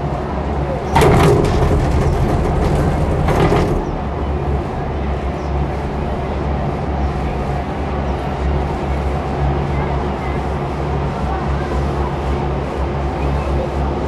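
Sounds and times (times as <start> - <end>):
gondola cabin rumbling on cable: 0.0 - 14.0
loud clatter of cabin on sheaves: 0.9 - 7.6.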